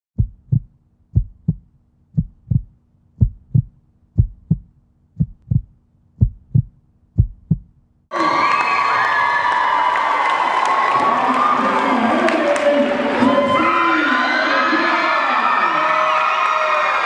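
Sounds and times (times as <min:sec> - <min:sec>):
heartbeat thumps: 0:00.2 - 0:07.9
crowd cheering and shouting: 0:08.1 - 0:17.0.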